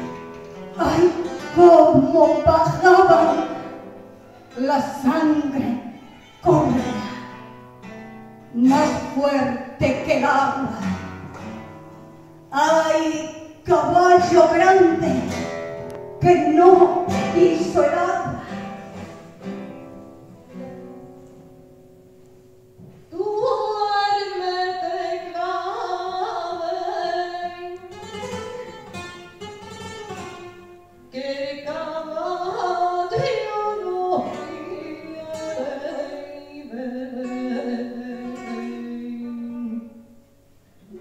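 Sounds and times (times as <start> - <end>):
classical guitar: 0.0 - 41.0
woman singing: 0.7 - 3.9, 4.5 - 7.4, 8.5 - 11.1, 12.5 - 15.6, 16.2 - 18.7, 23.1 - 28.4, 31.1 - 40.2.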